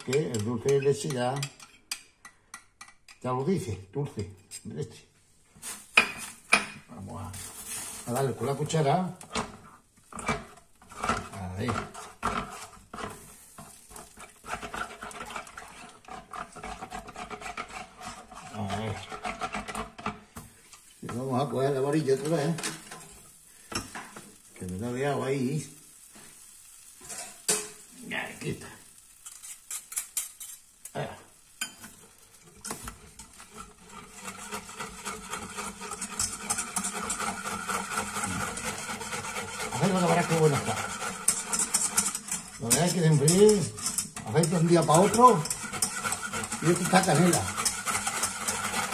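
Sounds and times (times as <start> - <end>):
metal spoon scraping saucepan: 0.0 - 3.3, 7.3 - 20.2, 29.2 - 48.9
whisk clicking against pot: 0.0 - 3.3, 8.7 - 20.2, 32.6 - 48.9.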